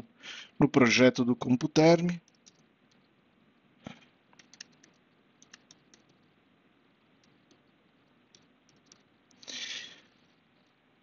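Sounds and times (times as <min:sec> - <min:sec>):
faint keyboard typing: 0:02.0 - 0:03.1, 0:03.8 - 0:06.4, 0:07.2 - 0:10.8.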